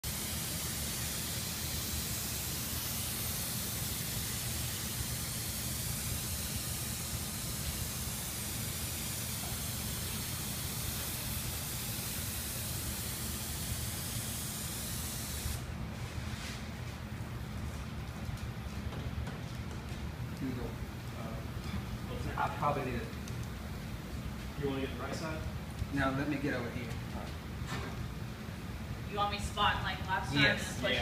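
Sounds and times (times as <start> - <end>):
spray gun hissing: 0.0 - 15.7.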